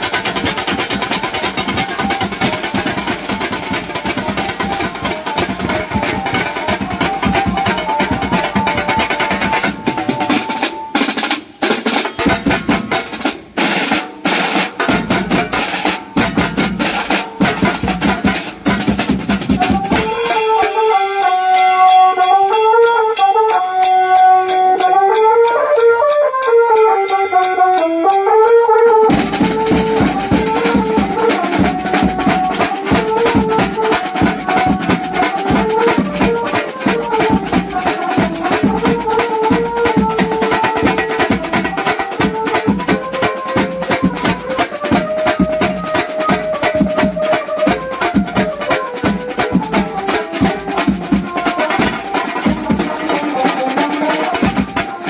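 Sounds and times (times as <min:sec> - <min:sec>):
snare tom and bass drum beats: 0:00.0 - 0:20.9, 0:29.0 - 0:55.0
keyboard melody through loudspeaker: 0:20.0 - 0:34.2.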